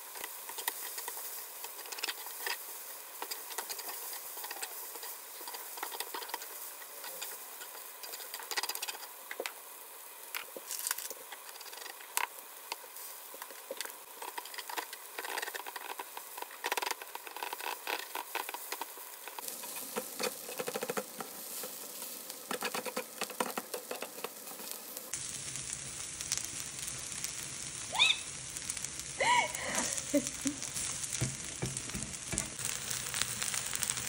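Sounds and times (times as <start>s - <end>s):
food sizzling on a griddle: 0.0s - 34.0s
metal utensils scraping a griddle: 0.1s - 9.1s.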